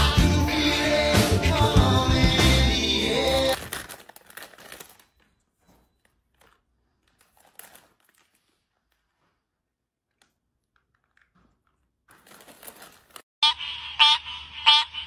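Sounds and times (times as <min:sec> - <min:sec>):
loud music: 0:00.0 - 0:03.6
plastic chip bag crinkling: 0:03.2 - 0:13.3.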